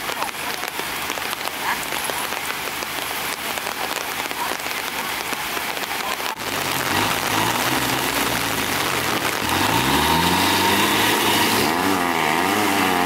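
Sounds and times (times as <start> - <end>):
rain falling on wet ground: 0.0 - 13.0
truck engine running: 6.3 - 13.0.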